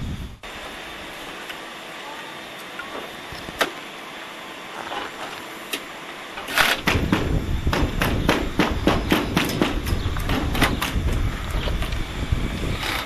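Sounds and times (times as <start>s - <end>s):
loud rumble: 6.5s - 13.0s.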